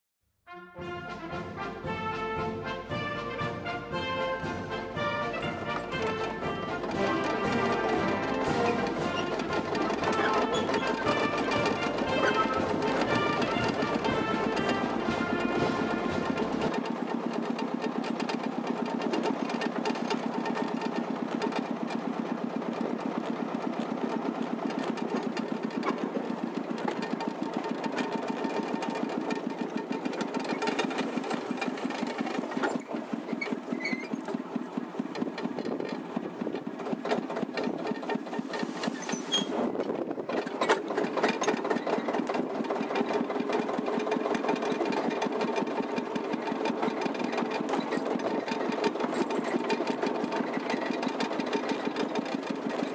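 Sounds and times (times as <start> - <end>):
locomotive engine running: 0.8 - 52.9.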